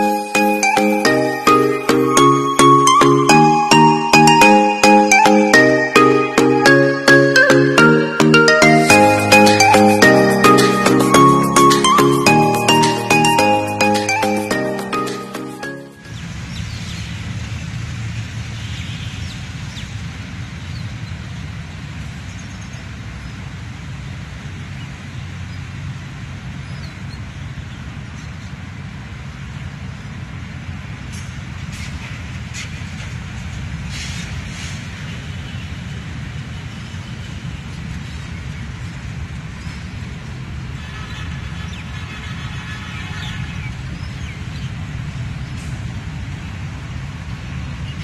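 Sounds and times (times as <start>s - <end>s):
outdoor noise: 16.0s - 48.0s.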